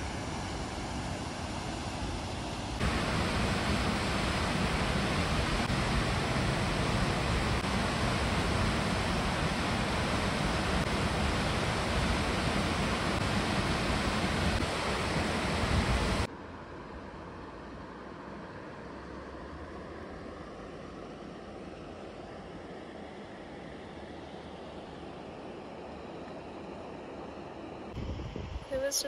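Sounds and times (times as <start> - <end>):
waterfall rushing over rocks: 2.8 - 16.3.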